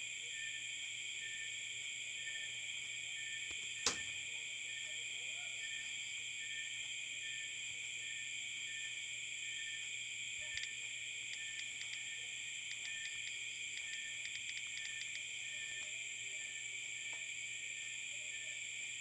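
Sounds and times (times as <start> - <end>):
insect chorus: 0.0 - 19.0
sharp click: 3.8 - 4.1.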